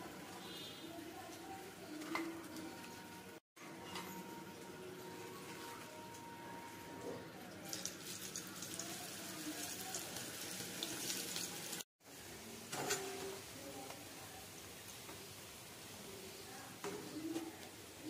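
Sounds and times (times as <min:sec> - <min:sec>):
food frying in hot oil: 0:00.0 - 0:03.4, 0:07.5 - 0:18.0.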